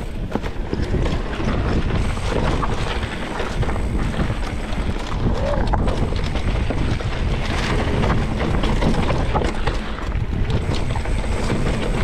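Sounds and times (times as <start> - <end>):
bike clicks and rattles: 0.0 - 12.0
tyres rolling over dirt: 0.0 - 12.0
wind buffeting microphone: 0.0 - 12.0.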